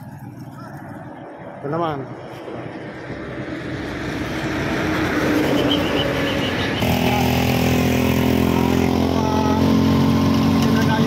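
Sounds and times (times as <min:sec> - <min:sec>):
wind and road noise: 0:00.0 - 0:11.0
motorcycle engine running: 0:06.8 - 0:11.0.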